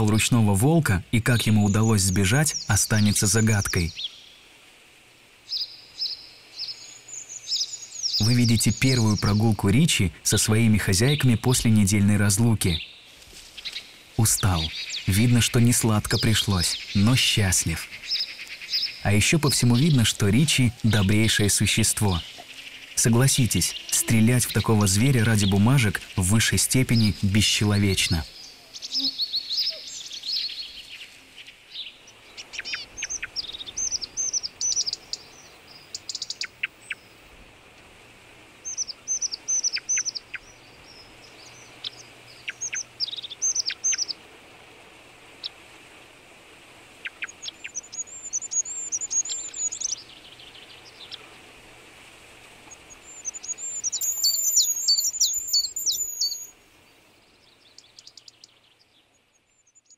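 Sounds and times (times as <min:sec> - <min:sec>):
songbirds singing: 0:00.0 - 0:59.9
bird trilling: 0:28.7 - 0:30.6, 0:32.4 - 0:37.2, 0:38.6 - 0:44.2, 0:47.0 - 0:50.2, 0:52.7 - 0:56.6.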